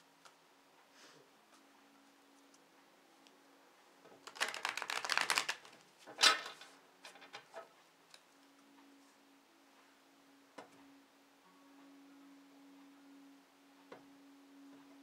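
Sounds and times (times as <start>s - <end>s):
cards riffle-shuffled: 4.2s - 5.9s
cards falling together crackle: 4.2s - 6.6s.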